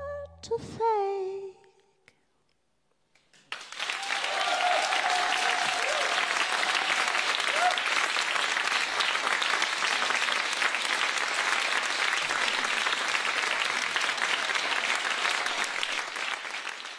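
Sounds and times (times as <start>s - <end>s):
audience applauding: 3.3s - 16.9s.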